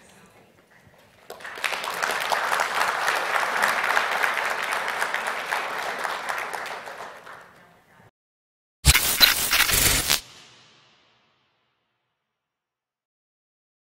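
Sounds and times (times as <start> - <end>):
audience applauding: 1.2 - 7.7.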